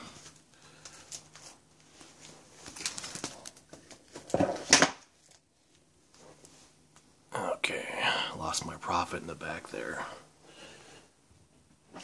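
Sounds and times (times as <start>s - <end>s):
plastic bags rustling and crinkling: 0.1s - 5.5s.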